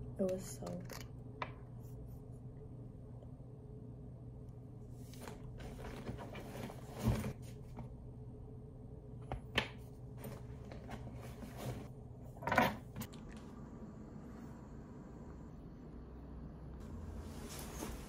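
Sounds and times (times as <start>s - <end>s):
low steady hum: 0.0s - 18.0s
objects rustling: 5.0s - 7.9s, 10.2s - 11.9s.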